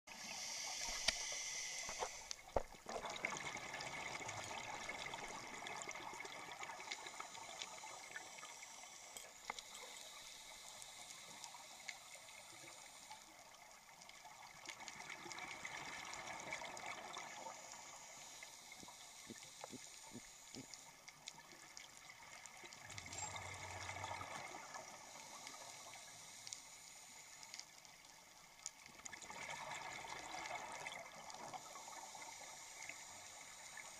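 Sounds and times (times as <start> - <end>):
faint clicks: 0.8 - 2.8, 18.5 - 29.5.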